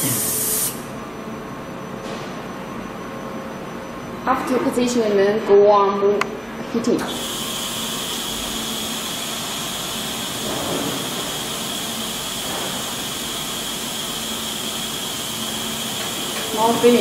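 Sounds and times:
hot-air heater blowing: 0:00.0 - 0:00.9, 0:07.0 - 0:17.0.

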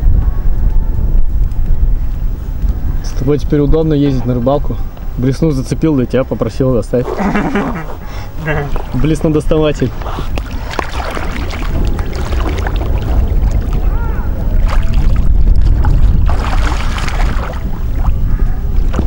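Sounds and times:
wind rumbling on microphone: 0:00.0 - 0:19.0
water splashing and lapping: 0:07.7 - 0:19.0.

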